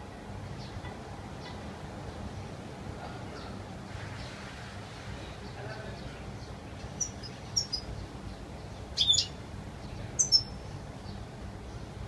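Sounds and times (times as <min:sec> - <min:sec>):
finch chirping: 0:06.4 - 0:10.8.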